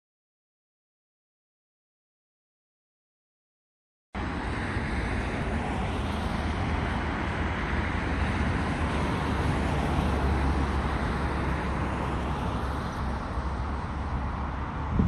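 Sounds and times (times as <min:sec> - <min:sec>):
distant jet engines roaring: 0:04.2 - 0:15.0
wind rumble on microphone: 0:04.2 - 0:15.0.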